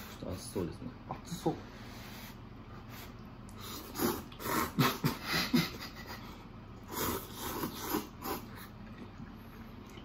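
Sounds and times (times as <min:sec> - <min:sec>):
people slurping noodles: 0:03.5 - 0:05.1, 0:06.8 - 0:09.0.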